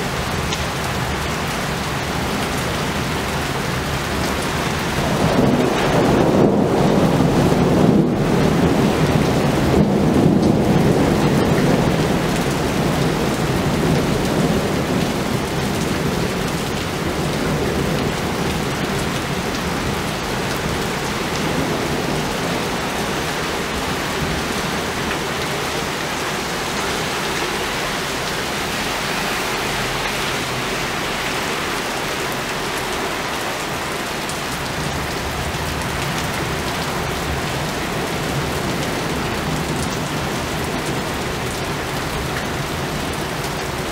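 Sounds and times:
heavy rain pouring: 0:00.0 - 0:43.9
thunder rumbling: 0:04.8 - 0:29.2.

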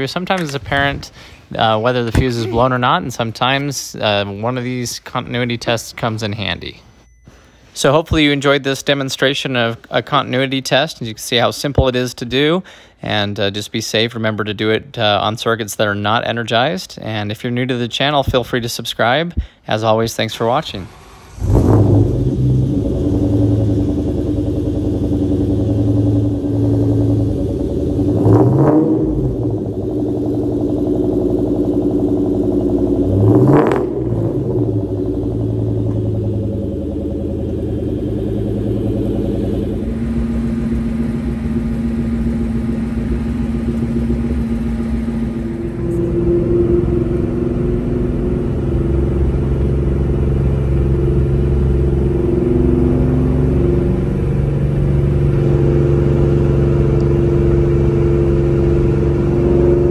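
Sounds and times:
car driving away: 0:00.0 - 0:04.6, 0:20.6 - 0:59.9
car engine idling and revving: 0:20.7 - 0:59.9.

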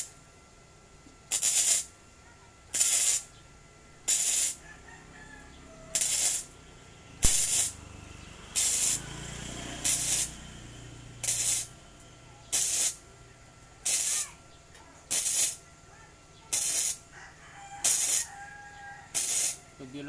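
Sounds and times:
welding arc crackling hisses: 0:01.3 - 0:02.0, 0:02.7 - 0:03.4, 0:04.0 - 0:04.6, 0:05.4 - 0:06.6, 0:07.2 - 0:13.0, 0:13.8 - 0:14.4, 0:15.0 - 0:15.7, 0:16.4 - 0:17.1, 0:17.8 - 0:20.0.

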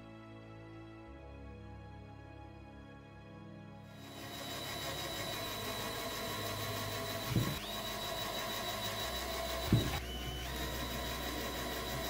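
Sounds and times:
cordless drill whining: 0:04.0 - 0:12.0.

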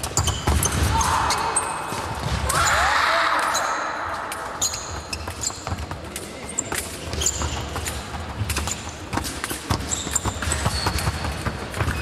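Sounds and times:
sneaker squeaks on floor: 0:00.0 - 0:01.9, 0:04.5 - 0:12.0.

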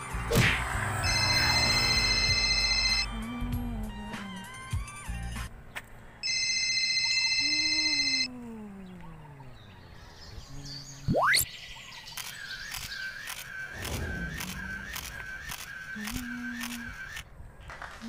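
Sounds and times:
steady high beep: 0:01.0 - 0:03.1
chirping pattern with clicks: 0:07.0 - 0:17.3
fast rising whoosh: 0:13.6 - 0:15.7.

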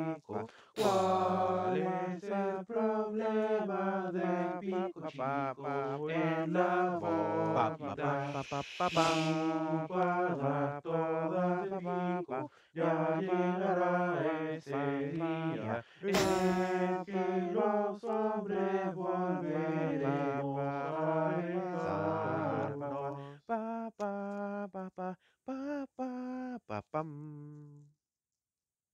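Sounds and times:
men singing a cappella harmony: 0:00.0 - 0:27.8
short breathy hiss: 0:08.0 - 0:09.7.

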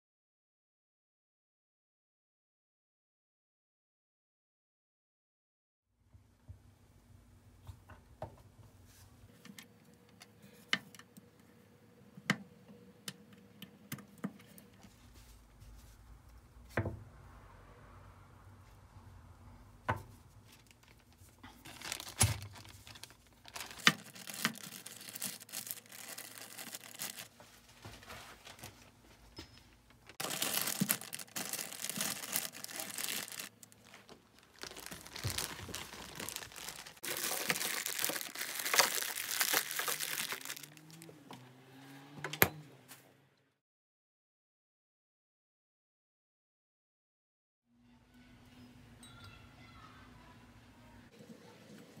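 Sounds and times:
plastic bag crinkling: 0:20.4 - 0:27.4, 0:28.0 - 0:28.9, 0:30.0 - 0:41.1.

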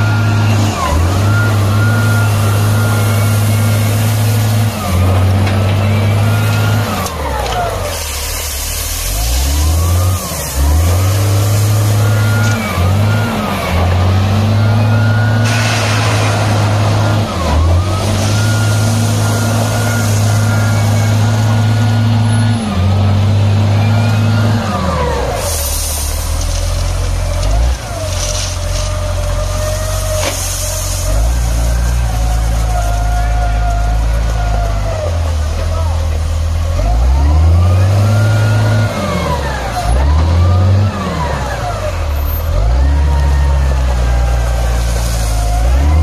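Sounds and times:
diesel engine revving: 0:00.0 - 0:46.0
stone pouring and scraping: 0:25.5 - 0:29.4.

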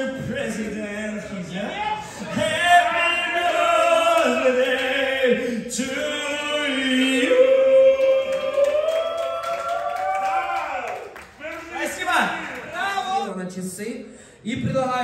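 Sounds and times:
men singing into microphones: 0:02.2 - 0:08.2.

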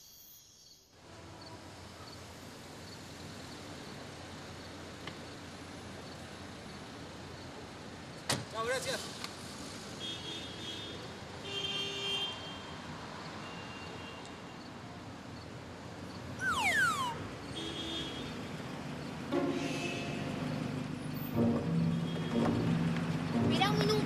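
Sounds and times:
passing cars humming: 0:15.0 - 0:24.0
brief high-pitched tones: 0:16.4 - 0:17.3
downward-sliding tone: 0:16.4 - 0:17.3.

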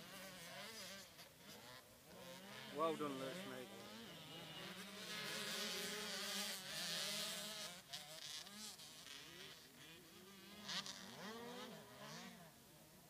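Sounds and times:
distant dirt bike engines revving: 0:00.0 - 0:13.0.

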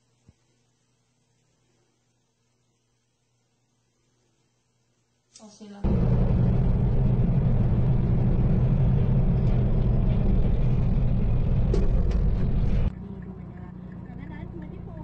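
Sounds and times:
vehicle rumble at highway speed: 0:05.8 - 0:15.0.

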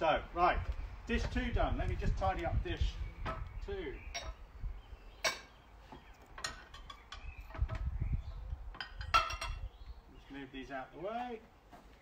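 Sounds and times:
kitchenware clattering on wood: 0:06.4 - 0:07.8, 0:08.8 - 0:09.6.

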